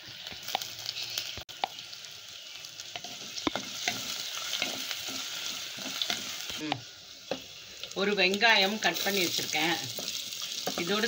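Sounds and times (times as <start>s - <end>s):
spices sizzling in hot oil: 0.0s - 11.0s
spoon knocking and scraping pan: 2.9s - 6.6s, 9.8s - 11.0s.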